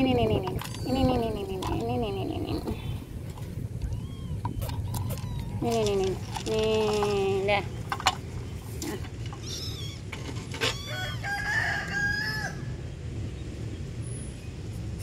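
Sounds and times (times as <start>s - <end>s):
low steady rumble: 0.0s - 15.0s
rooster crowing: 10.7s - 12.8s.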